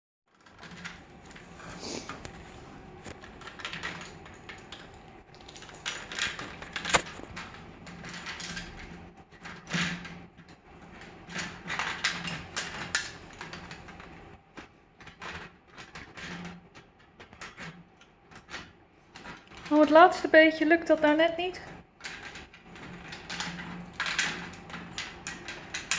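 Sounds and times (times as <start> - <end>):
plastic bricks clicking and rattling: 0.3 - 1.5, 3.0 - 25.9.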